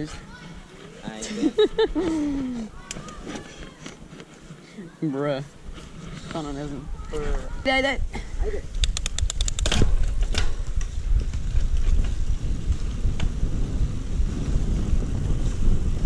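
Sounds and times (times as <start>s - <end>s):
low rumble of wind and rolling: 5.6s - 16.0s
rapid bike freewheel clicks: 8.8s - 9.8s.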